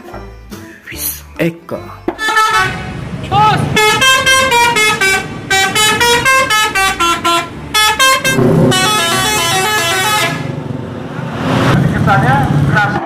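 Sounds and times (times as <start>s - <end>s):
engine and traffic rumble: 1.0s - 13.0s
bus musical horn: 2.1s - 10.8s.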